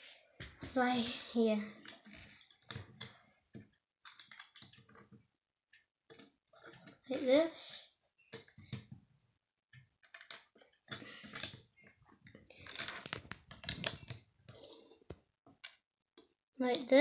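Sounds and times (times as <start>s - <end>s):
plastic bricks clicking and clattering: 1.8s - 5.2s, 10.0s - 14.6s.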